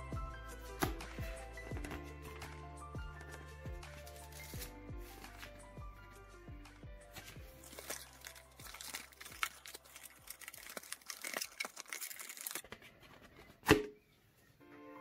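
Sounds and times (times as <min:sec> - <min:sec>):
paper rustling and crinkling: 0:00.6 - 0:05.6, 0:07.1 - 0:13.6.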